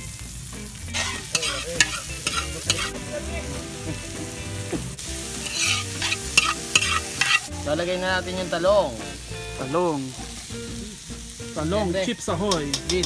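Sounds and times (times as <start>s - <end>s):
vegetables sizzling in hot oil: 0.0s - 13.0s
spatula scraping a pan: 0.9s - 3.1s, 5.4s - 7.5s.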